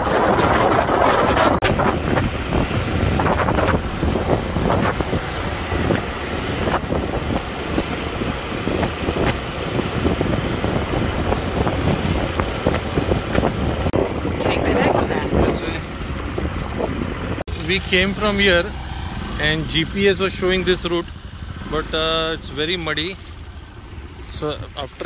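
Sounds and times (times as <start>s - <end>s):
wind buffeting microphone: 0.0s - 17.4s
motorbike engine running: 0.0s - 25.0s.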